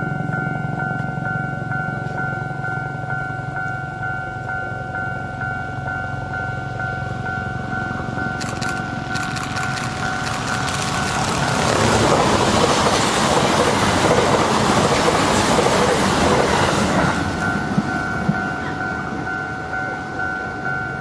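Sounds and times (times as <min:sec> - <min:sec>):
pulsing ringing tone: 0:00.0 - 0:12.4
train wheels rushing on rail: 0:08.4 - 0:21.0.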